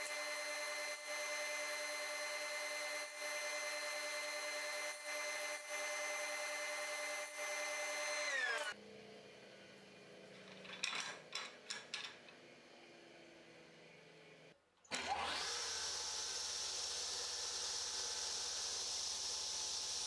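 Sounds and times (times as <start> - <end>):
table saw whining: 0.0 - 8.8, 14.9 - 20.0.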